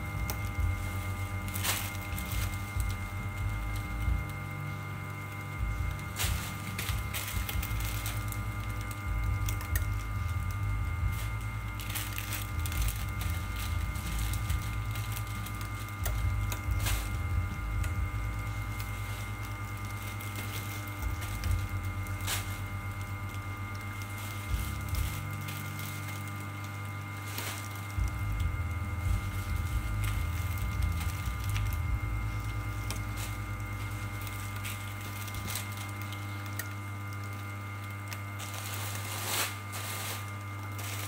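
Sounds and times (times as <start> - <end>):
machine electric hum: 0.0 - 41.0
plastic bag crinkling: 0.0 - 41.0.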